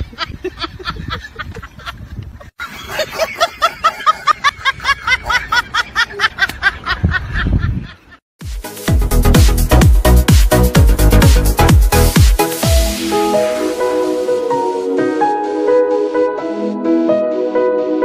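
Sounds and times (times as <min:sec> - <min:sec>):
high-pitched laughter: 0:00.0 - 0:08.2
electronic dance music: 0:08.4 - 0:18.0.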